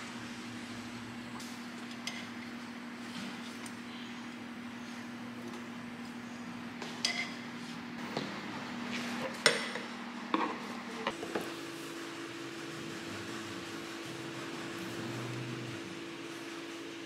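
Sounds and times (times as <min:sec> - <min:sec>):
steady low hum: 0:00.0 - 0:17.0
utensils clinking against dishes: 0:07.0 - 0:07.4.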